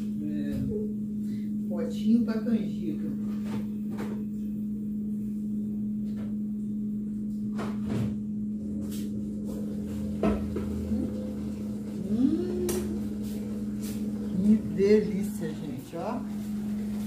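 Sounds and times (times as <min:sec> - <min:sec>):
low hum: 0:03.7 - 0:17.0.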